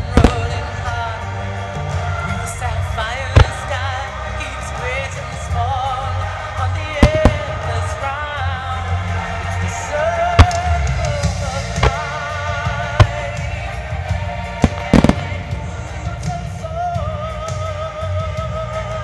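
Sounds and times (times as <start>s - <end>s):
music with singing voice: 0.0s - 19.0s
firework shells bursting: 0.1s - 0.6s, 3.4s - 3.7s, 7.0s - 7.7s, 11.8s - 12.2s, 13.0s - 13.4s, 14.6s - 15.5s.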